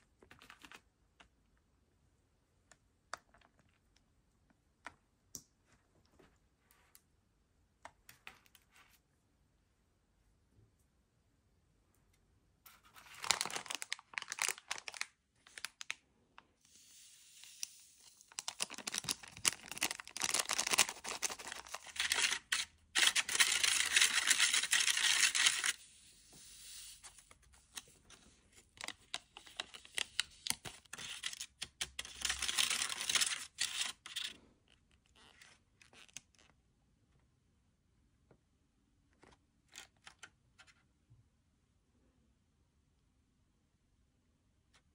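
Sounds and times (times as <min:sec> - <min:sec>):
powder packets tearing and crinkling: 0:13.0 - 0:16.0, 0:17.4 - 0:25.8, 0:28.8 - 0:34.3.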